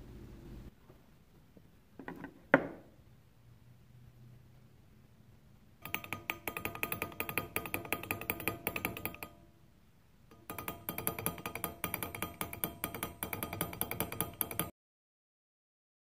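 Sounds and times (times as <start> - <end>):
fast ringing metallic taps: 5.8 - 9.4, 10.3 - 14.7.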